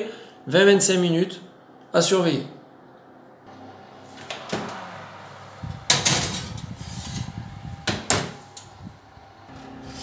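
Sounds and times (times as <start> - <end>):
dish scraping on wire rack: 5.9 - 7.4.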